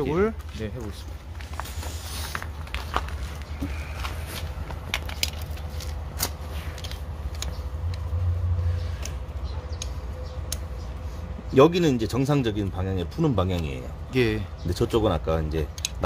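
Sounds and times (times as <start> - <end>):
steady low rumble: 0.0 - 14.8.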